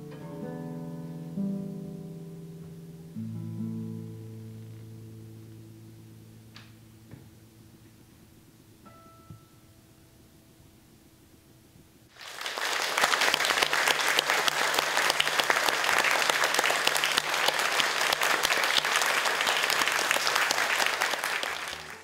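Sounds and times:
audience applause: 0:12.1 - 0:22.0.

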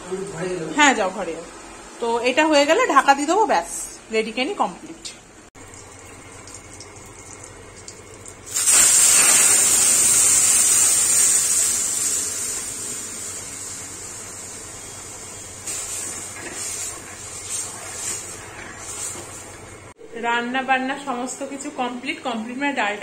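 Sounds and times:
dal sizzling in hot oil: 0:05.6 - 0:20.0.

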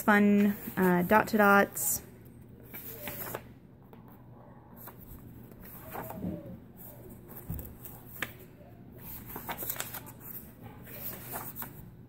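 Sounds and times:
paper pages rustling: 0:02.6 - 0:03.5, 0:04.8 - 0:11.9.

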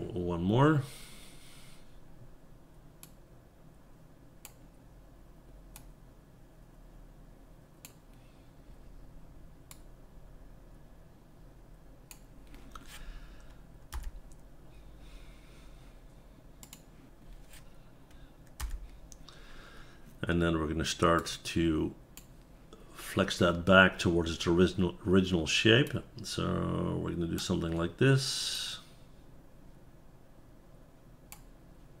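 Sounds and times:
keyboard and mouse clicks: 0:16.6 - 0:16.9.

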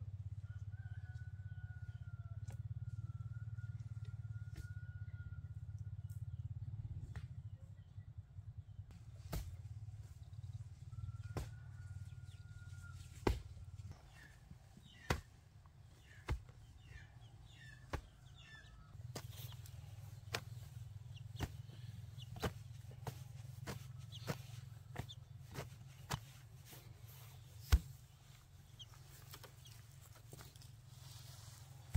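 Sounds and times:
sharp knocks or chops: 0:13.2 - 0:13.5.

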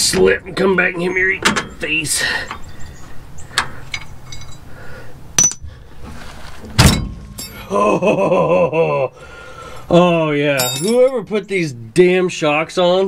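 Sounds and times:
wrench clinking on bolt: 0:05.4 - 0:05.6, 0:10.6 - 0:11.2
loud metal clank: 0:06.8 - 0:07.7.

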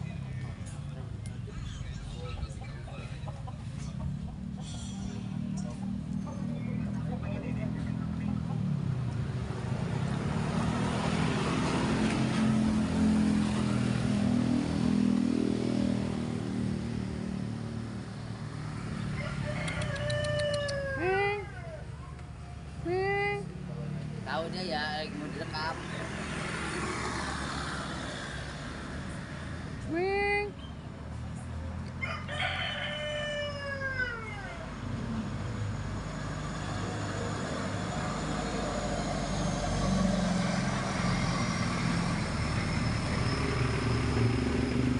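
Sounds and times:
rooster crowing: 0:19.0 - 0:21.9, 0:32.0 - 0:34.7.

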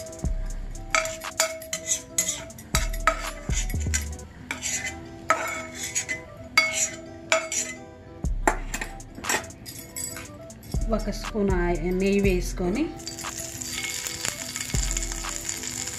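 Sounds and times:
background music: 0:00.0 - 0:15.9
spatula scraping iron pan: 0:00.9 - 0:07.8.

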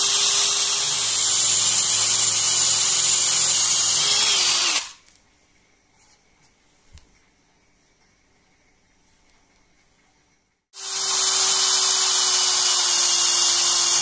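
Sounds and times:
power drill whining: 0:00.0 - 0:05.0, 0:10.8 - 0:14.0.

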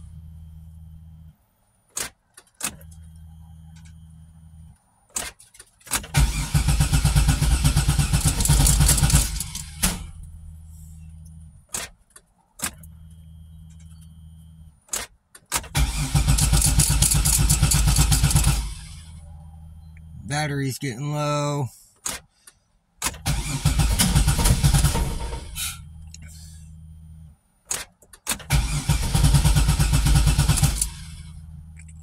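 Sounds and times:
low steady hum: 0:00.0 - 0:02.0, 0:02.6 - 0:05.2, 0:08.4 - 0:14.9, 0:15.8 - 0:22.0, 0:23.3 - 0:27.6, 0:30.7 - 0:32.0
car engine cranking: 0:00.0 - 0:20.5, 0:21.9 - 0:32.0
clicks: 0:11.1 - 0:15.8.

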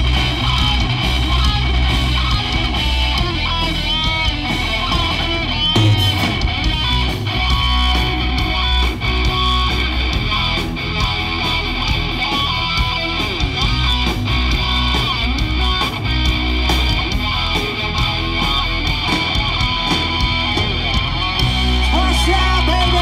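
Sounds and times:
guitar-led rock music: 0:00.0 - 0:23.0.

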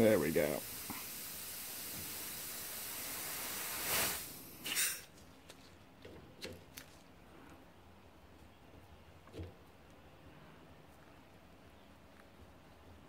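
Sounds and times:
compressed air hissing: 0:00.0 - 0:05.1.

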